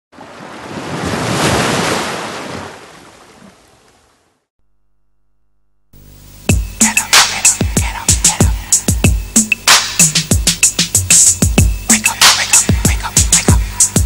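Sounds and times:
wave breaking: 0.2 - 4.2
music with heavy drum beat: 6.4 - 14.0.

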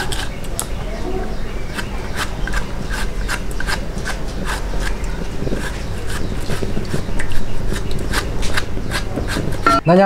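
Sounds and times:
knife chopping bamboo shoot: 1.7 - 6.6.

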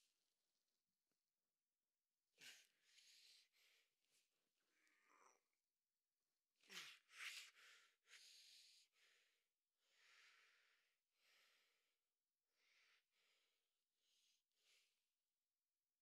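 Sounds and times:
man breathing heavily through nose: 6.8 - 11.8.

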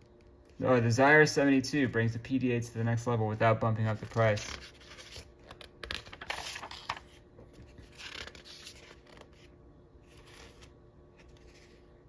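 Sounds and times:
magazine pages turning: 3.8 - 12.0.

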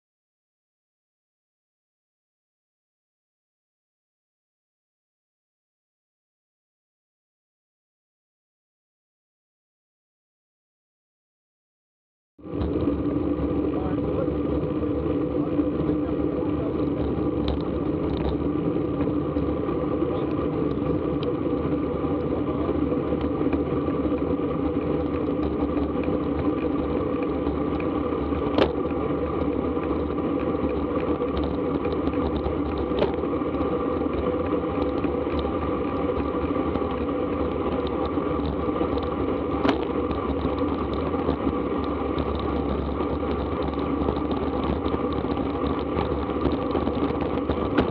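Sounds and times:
wind and road rush: 12.4 - 47.9.

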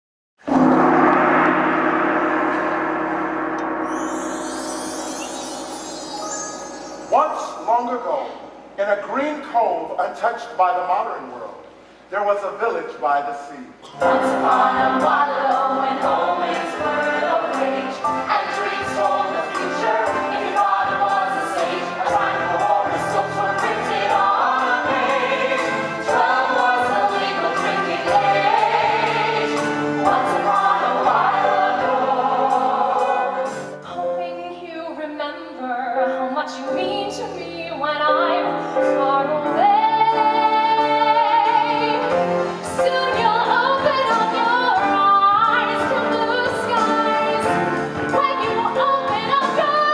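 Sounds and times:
choir singing with accompaniment: 0.5 - 8.8, 13.8 - 34.0, 38.4 - 49.9
held sung note with vibrato: 3.7 - 7.8.

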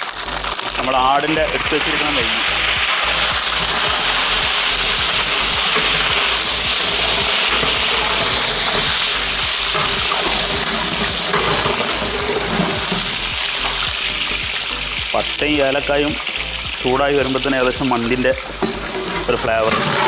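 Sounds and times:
spices sizzling in hot oil: 0.0 - 20.0
ladle stirring in a pot: 2.2 - 13.9, 18.6 - 20.0.

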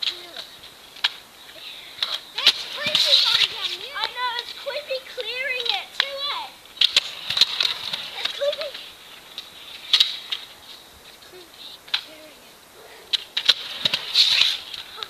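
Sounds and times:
kick scooter clacking on concrete: 2.0 - 10.6, 13.1 - 15.0.

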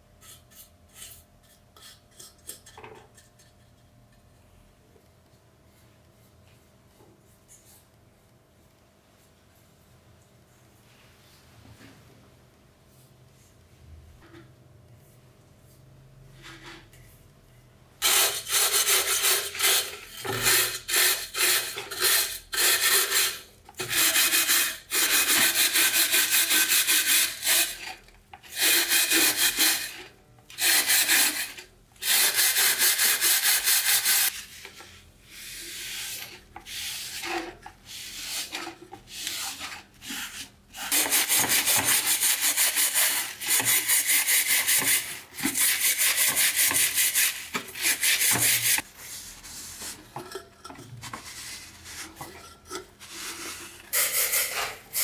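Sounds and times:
hand scrubbing metal: 18.0 - 27.9, 30.6 - 55.0.

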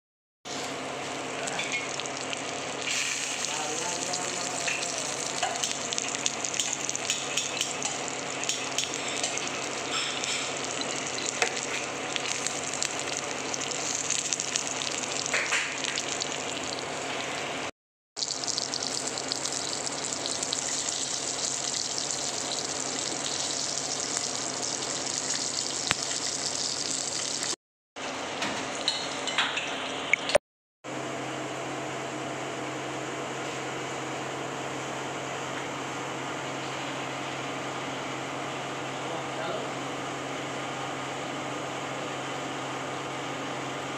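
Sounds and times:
fish sizzling in hot oil: 1.1 - 27.6.

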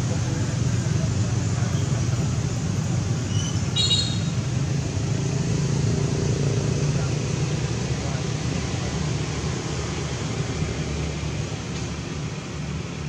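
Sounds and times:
low rumbling background noise: 0.0 - 13.0
high-pitched chirp: 3.3 - 4.4.

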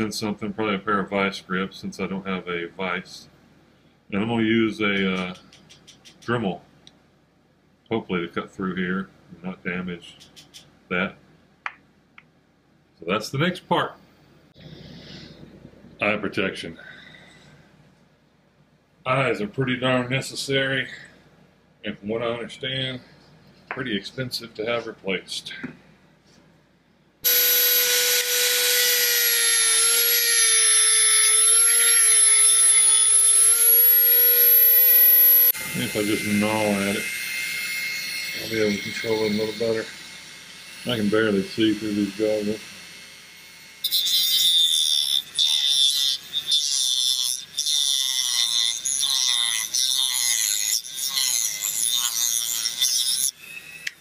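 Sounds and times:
rotary tool whining: 27.2 - 54.0.

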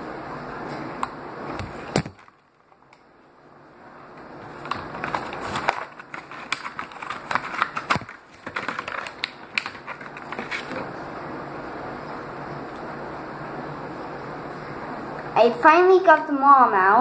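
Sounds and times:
toy packaging crackling and crinkling: 4.5 - 10.8.

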